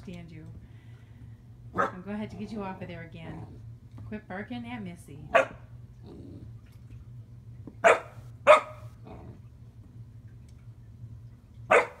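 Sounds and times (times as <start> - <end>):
puppy barking: 1.8 - 2.0, 5.3 - 5.6, 7.8 - 8.9, 11.7 - 12.0.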